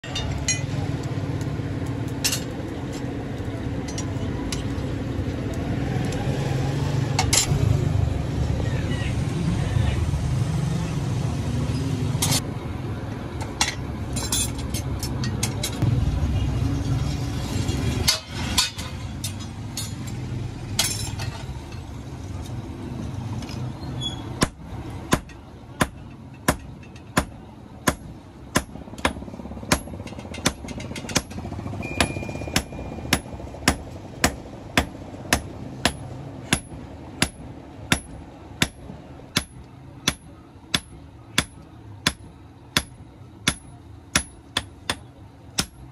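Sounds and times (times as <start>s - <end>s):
hammer clanging on anvil: 25.1s - 38.8s.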